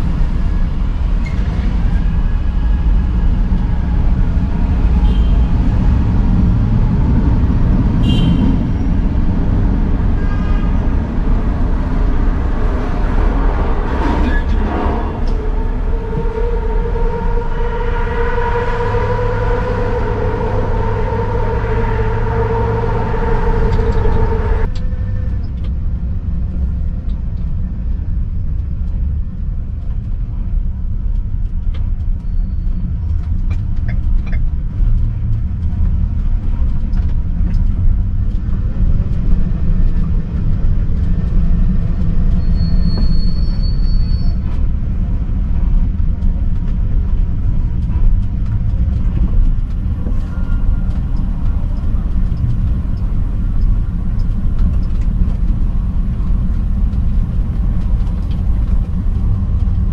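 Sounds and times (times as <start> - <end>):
city traffic rumble: 0.0 - 59.9
high-pitched squeal: 10.1 - 25.3.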